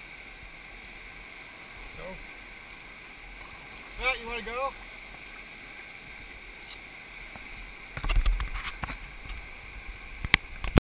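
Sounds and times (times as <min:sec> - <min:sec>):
whitewater rushing: 0:00.0 - 0:10.8.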